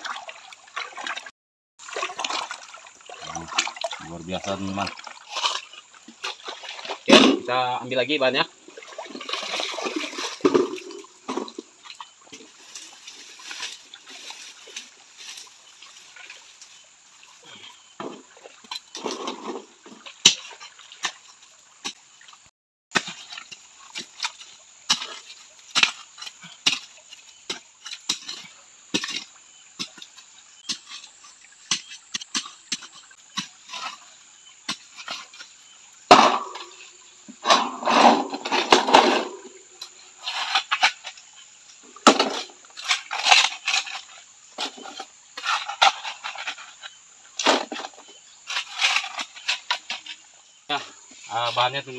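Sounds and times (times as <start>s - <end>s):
hand shovel digging wet sandy mud: 22.9s - 36.7s.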